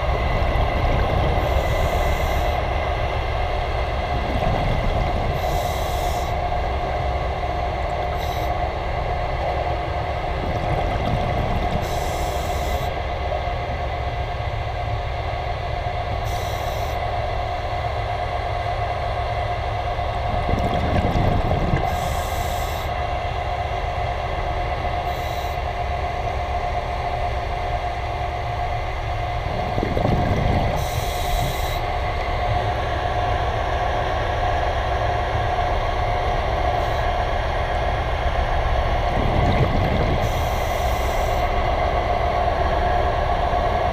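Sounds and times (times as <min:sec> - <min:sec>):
underwater propeller rumble: 0:04.0 - 0:05.6, 0:09.4 - 0:12.6, 0:20.2 - 0:22.3, 0:29.3 - 0:32.6, 0:38.6 - 0:42.3.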